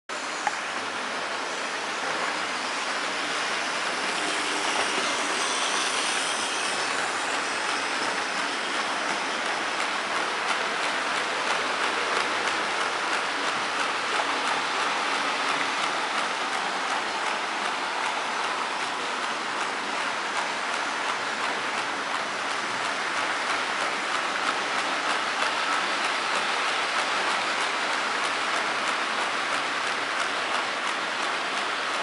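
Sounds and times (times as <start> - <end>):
model train wheels rolling rattle: 1.9 - 32.0.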